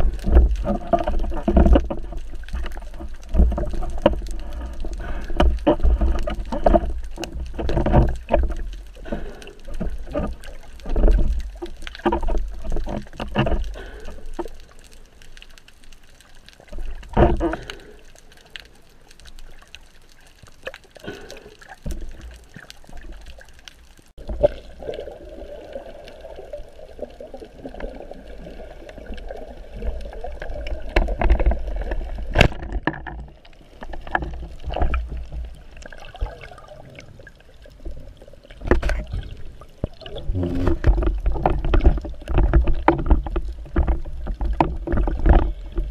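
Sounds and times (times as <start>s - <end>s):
water gurgling underwater: 0.0s - 14.8s, 20.5s - 45.9s
clicks and knocks: 30.9s - 35.3s.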